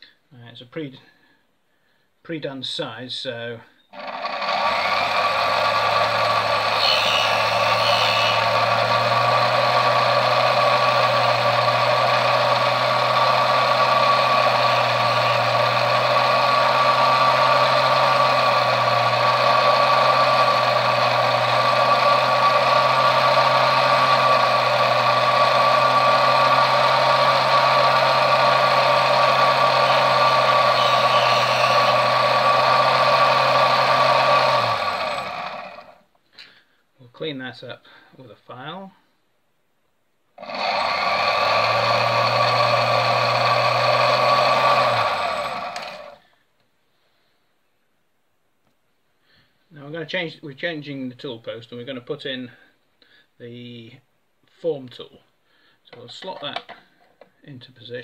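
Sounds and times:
bench lathe motor whining: 0:03.9 - 0:36.0, 0:40.4 - 0:46.2.

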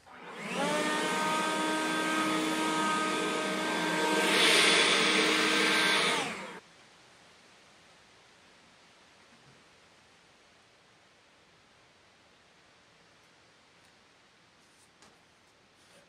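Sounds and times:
leaf blower whining: 0:00.0 - 0:06.6
rushing air: 0:00.4 - 0:06.6.

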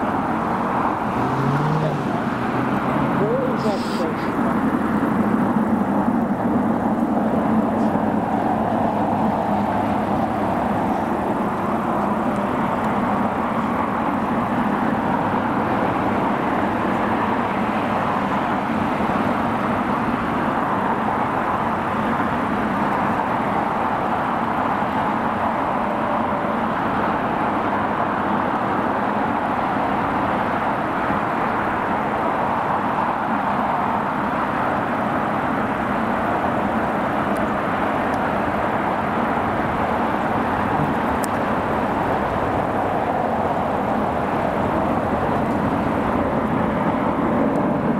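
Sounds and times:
steady engine roar: 0:00.0 - 0:47.9.

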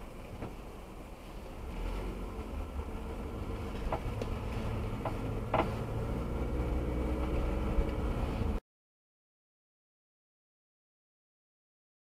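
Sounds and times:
engine and road rumble: 0:00.0 - 0:08.6.

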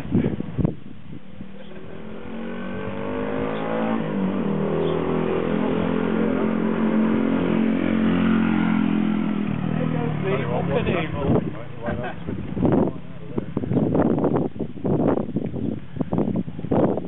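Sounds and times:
small motorbike engine accelerating: 0:01.6 - 0:11.4.

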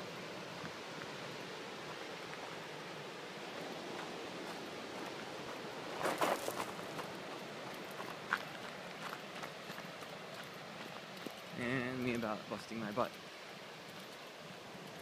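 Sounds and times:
distant surf: 0:00.0 - 0:15.0
wind: 0:00.0 - 0:15.0
shoes scuffing on gravel: 0:06.0 - 0:07.1.

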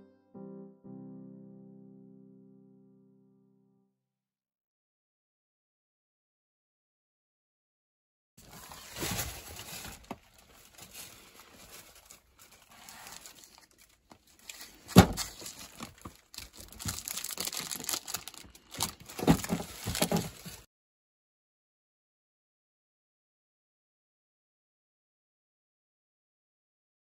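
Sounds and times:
paper and plastic crinkling: 0:08.4 - 0:20.7.

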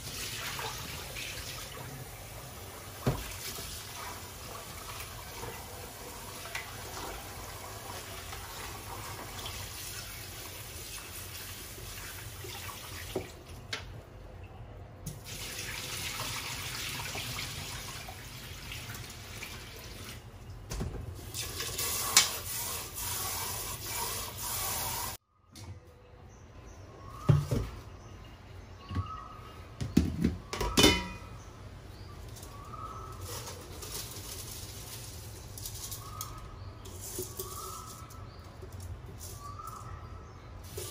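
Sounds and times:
tap water splashing into sink: 0:03.0 - 0:04.1, 0:12.4 - 0:13.9.

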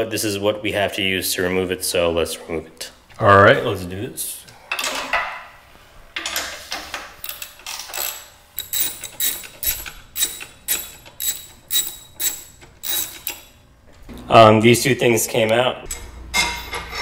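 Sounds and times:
socket ratchet clicking: 0:07.2 - 0:13.6.

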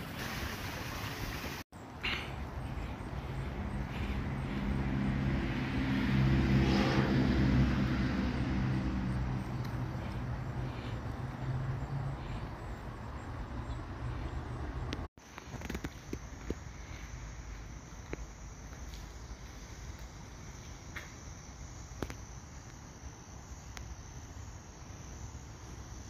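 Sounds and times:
car driving past: 0:03.6 - 0:15.0.

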